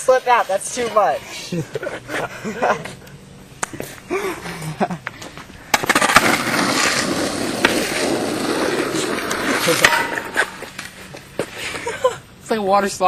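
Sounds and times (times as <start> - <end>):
skateboard wheels rolling on asphalt: 4.8 - 11.9
skateboard clack: 5.7 - 11.5.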